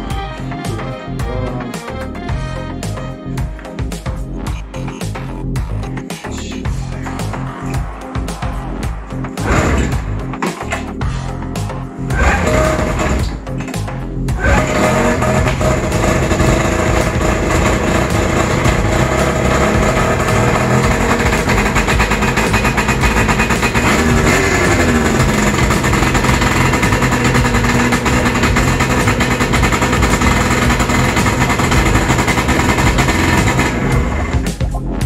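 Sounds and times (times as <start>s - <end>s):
snowmobile engine running: 12.1s - 13.4s, 14.4s - 34.5s.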